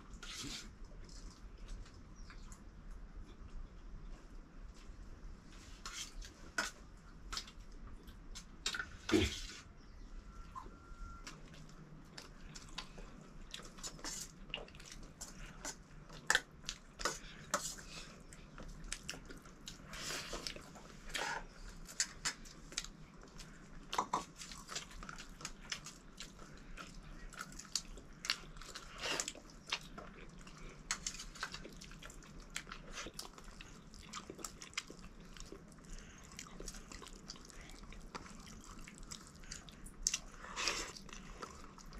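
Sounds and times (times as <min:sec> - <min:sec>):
biting and chewing: 0:11.3 - 0:41.9.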